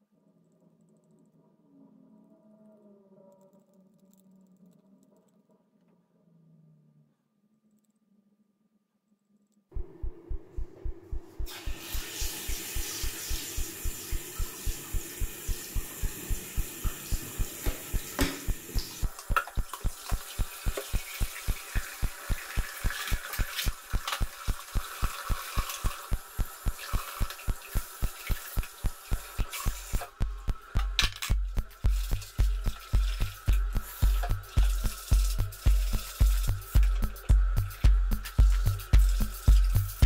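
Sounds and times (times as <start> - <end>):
music with thumping beat: 9.8 - 40.0
water running into sink: 10.8 - 37.2.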